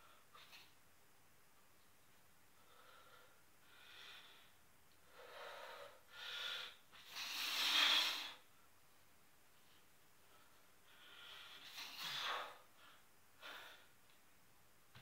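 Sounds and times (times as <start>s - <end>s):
man breathing hard: 2.6s - 8.4s, 10.2s - 14.0s.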